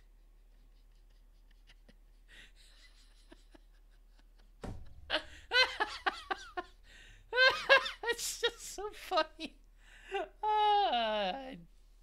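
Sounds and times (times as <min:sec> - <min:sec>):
man laughing loudly: 0:00.8 - 0:09.5.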